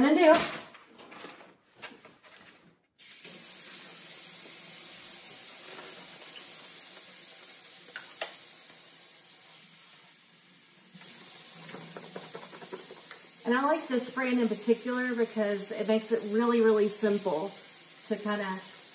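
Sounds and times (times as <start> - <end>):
faucet water running: 3.0 - 18.9.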